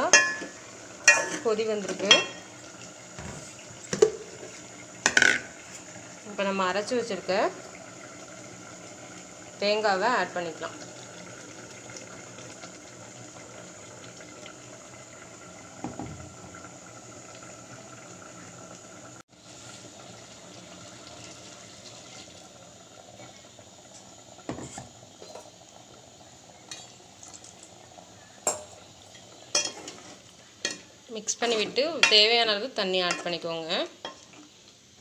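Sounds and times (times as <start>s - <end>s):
spoon knocking metal pot: 0.0s - 2.5s
curry bubbling in a pot: 0.0s - 35.0s.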